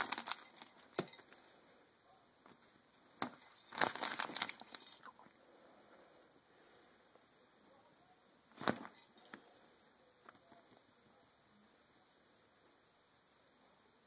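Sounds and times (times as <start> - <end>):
tablecloth rustling: 0.0 - 1.6, 2.4 - 5.3, 8.5 - 9.6.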